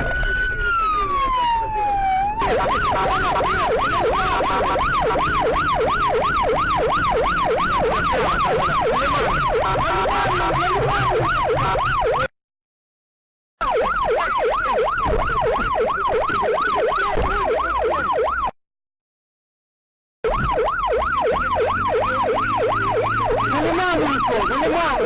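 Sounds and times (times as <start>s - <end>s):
emergency siren yelping: 0.0s - 12.3s, 13.6s - 18.6s, 20.2s - 25.0s.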